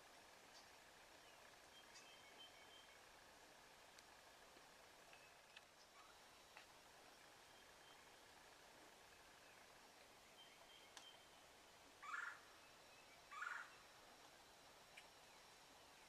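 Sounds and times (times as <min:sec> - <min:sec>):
wild turkey gobbling: 0:12.0 - 0:12.5, 0:13.3 - 0:13.8.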